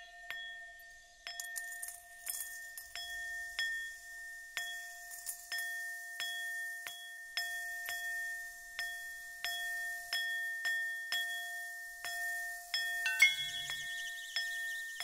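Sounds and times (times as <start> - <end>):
metal bowl ringing: 8.8 - 14.9.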